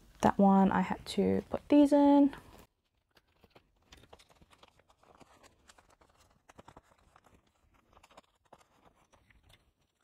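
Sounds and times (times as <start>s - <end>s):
plastic sleeves clicking and rustling: 2.4s - 10.0s.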